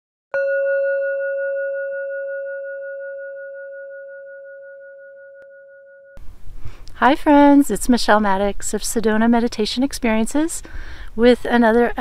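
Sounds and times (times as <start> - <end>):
singing bowl ringing: 0.4 - 6.2.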